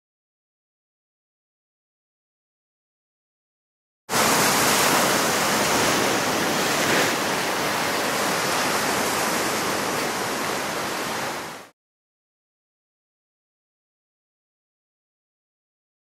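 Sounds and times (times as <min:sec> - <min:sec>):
surf breaking over rocks: 0:04.1 - 0:11.7.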